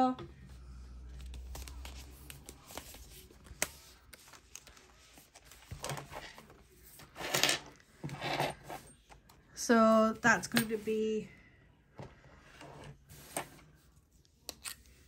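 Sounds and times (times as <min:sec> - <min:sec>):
paper rustling: 0:01.1 - 0:07.4.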